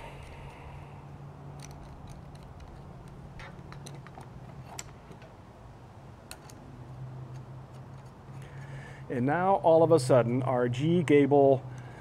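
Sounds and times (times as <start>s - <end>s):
metal antenna parts clicking: 1.5s - 5.4s, 6.2s - 8.7s.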